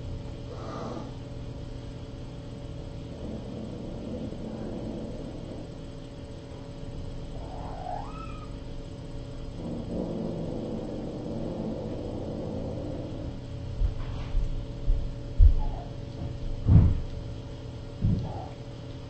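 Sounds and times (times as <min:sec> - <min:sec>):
electrical hum: 0:00.0 - 0:19.0
kitten meowing: 0:07.4 - 0:08.6
low thumps: 0:16.2 - 0:17.1, 0:18.0 - 0:18.5.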